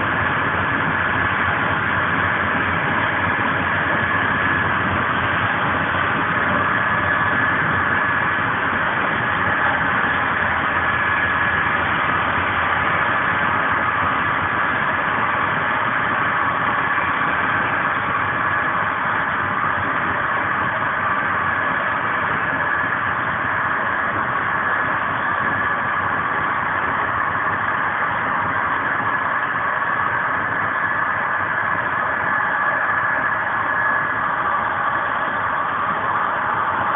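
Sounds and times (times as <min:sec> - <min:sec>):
faint high whine: 0:00.0 - 0:36.9
train wheels rumbling on rail: 0:00.0 - 0:36.9.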